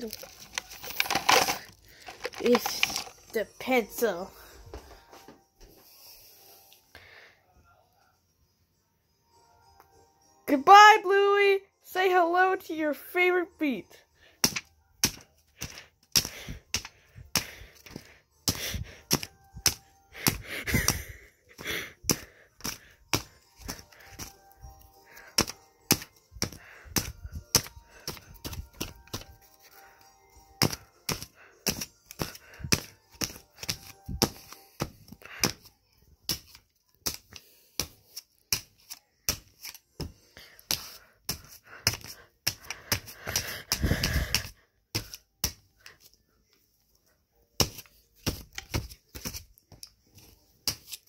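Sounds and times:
paper being beaten and crumpled: 0.0s - 3.4s, 14.4s - 24.4s, 25.1s - 29.8s, 30.6s - 35.7s, 36.3s - 46.0s, 47.6s - 49.6s.

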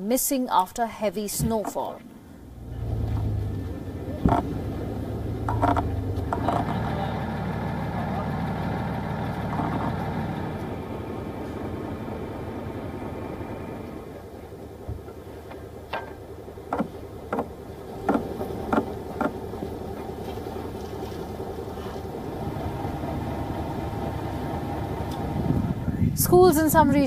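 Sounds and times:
vehicle engine running: 2.4s - 27.0s
sharp knocks: 15.9s - 19.4s.

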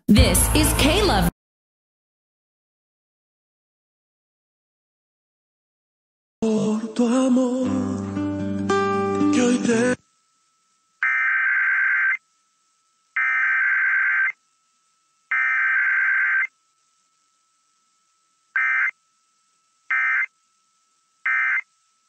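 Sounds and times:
buzzy digital data bursts: 11.0s - 12.2s, 13.2s - 14.4s, 15.3s - 16.5s, 18.5s - 19.0s, 19.9s - 20.3s, 21.2s - 21.7s.

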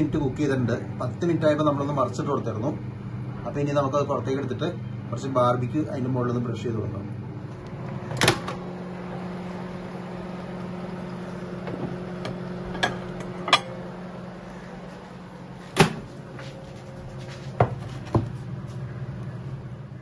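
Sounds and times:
microwave oven humming: 0.0s - 20.0s
microwave door clacking open: 8.1s - 8.6s
microwave door clicks and knocks: 8.1s - 8.6s, 15.8s - 16.1s.

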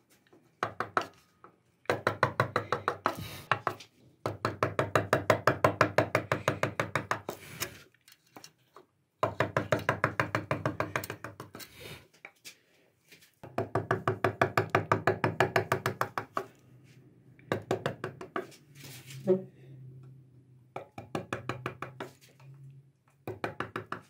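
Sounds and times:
chisel tapped with mallet: 0.6s - 7.4s, 9.2s - 11.6s, 13.4s - 16.5s, 17.4s - 18.5s, 20.0s - 22.2s, 23.2s - 24.0s.

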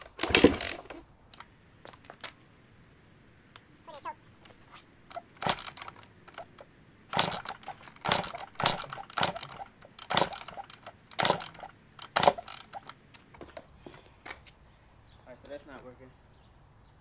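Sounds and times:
dirt bike kick-start turning over: 0.0s - 1.5s, 4.4s - 13.6s.

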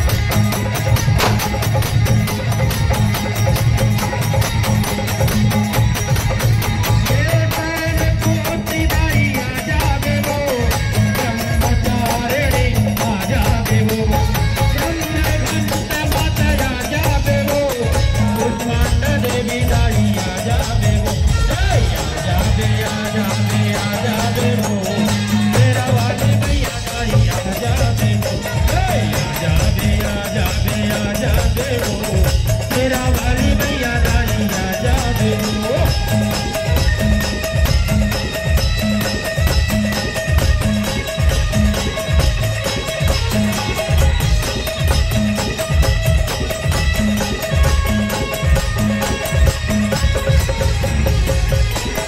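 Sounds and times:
fast percussion beat: 0.0s - 52.0s
folk music: 0.0s - 52.0s.

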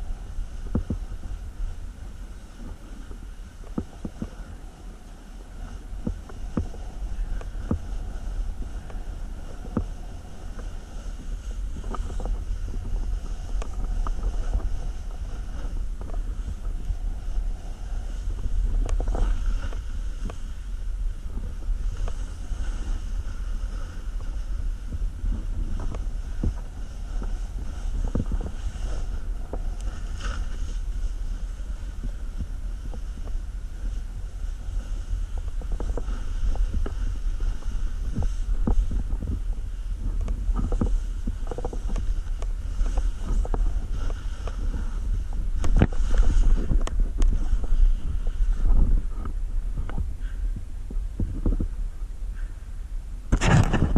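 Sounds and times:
skis sliding on snow: 0.0s - 50.4s
wind buffeting microphone: 0.0s - 53.9s.

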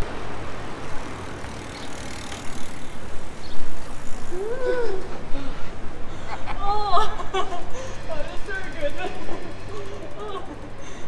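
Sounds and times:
passing traffic: 0.0s - 11.0s
person crying out: 4.3s - 5.2s.

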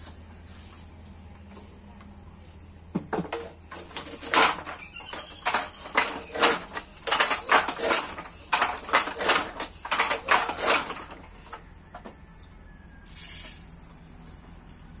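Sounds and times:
handloom wooden clacks: 3.0s - 12.1s.

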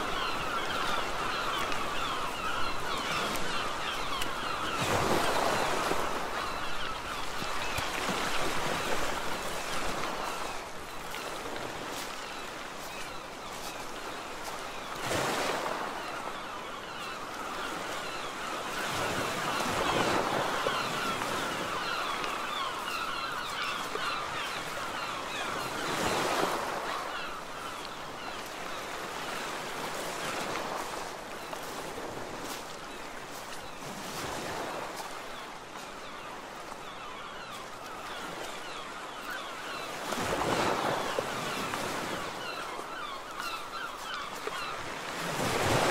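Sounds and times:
sea surf: 0.0s - 45.9s
wind: 0.0s - 45.9s.

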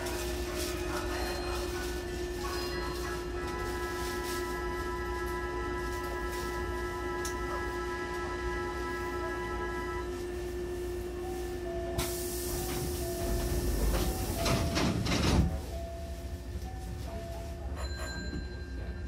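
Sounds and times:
train doors hissing: 11.9s - 15.7s.

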